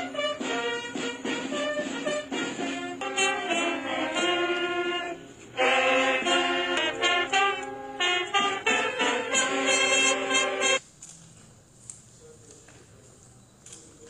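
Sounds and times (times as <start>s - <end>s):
brass band music: 0.0s - 10.8s.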